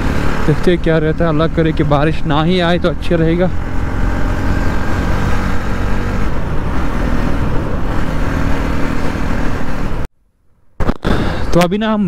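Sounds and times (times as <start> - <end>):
motorcycle engine running: 0.0 - 10.1.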